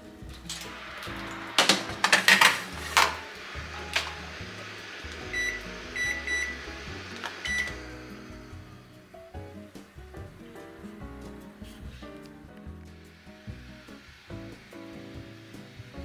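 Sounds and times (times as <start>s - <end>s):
oven door shutting: 0.3s - 8.0s
metal baking tray clattering: 0.5s - 4.2s
short high beeps: 5.3s - 6.6s, 7.5s - 7.8s.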